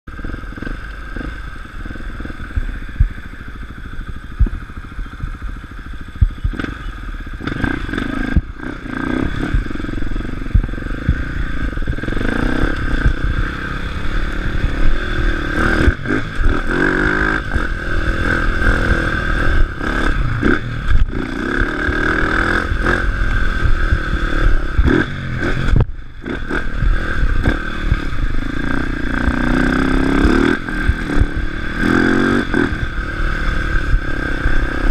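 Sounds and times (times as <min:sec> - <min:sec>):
dirt bike engine revving: 0:00.1 - 0:34.9
wind rumble on microphone: 0:00.1 - 0:34.9.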